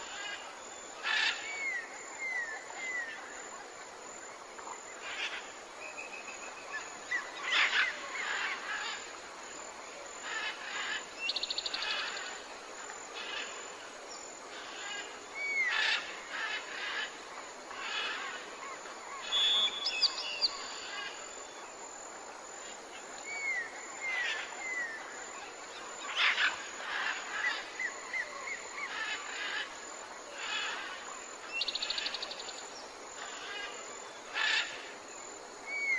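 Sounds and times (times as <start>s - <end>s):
birds calling and singing: 17.7s - 21.2s.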